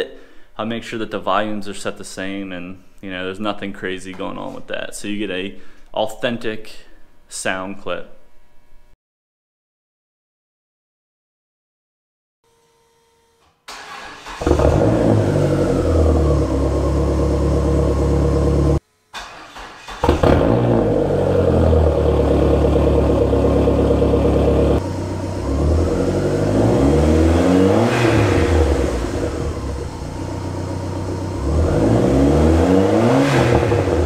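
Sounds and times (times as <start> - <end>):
engine revving: 13.8 - 34.0
car engine idling: 14.4 - 18.8, 20.0 - 32.8.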